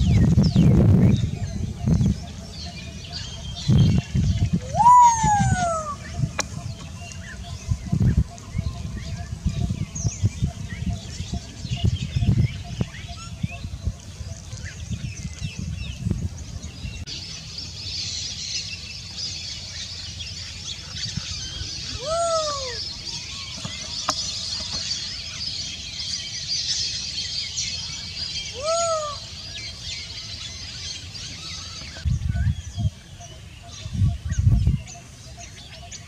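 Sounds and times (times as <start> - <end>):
small birds chirping: 0.0 - 36.0
bird calls rising and falling: 3.1 - 10.2, 19.8 - 32.1.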